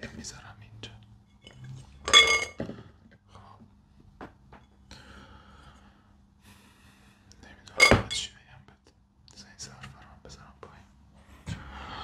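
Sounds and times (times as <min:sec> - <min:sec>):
kitchenware clinking: 0:01.4 - 0:02.8, 0:07.8 - 0:08.2.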